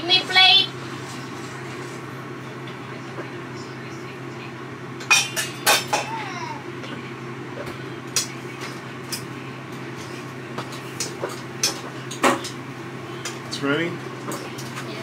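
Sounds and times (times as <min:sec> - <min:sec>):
steady low hum: 0:00.0 - 0:15.0
cookware clanking: 0:05.0 - 0:06.2.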